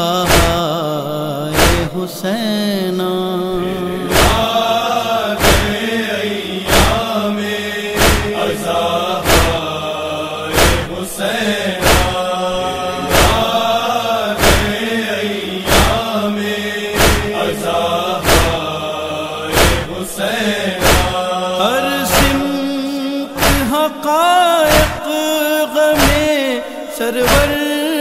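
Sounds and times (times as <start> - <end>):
voices chanting lament: 0.0 - 28.0
sharp rhythmic beat: 1.6 - 1.9, 4.1 - 4.8, 5.4 - 5.8, 6.7 - 7.2, 8.0 - 9.9, 10.5 - 11.0, 11.8 - 15.0, 15.7 - 16.2, 17.0 - 20.0, 20.8 - 21.3, 22.0 - 22.6, 23.4 - 23.8, 24.7 - 25.1, 26.0 - 26.4.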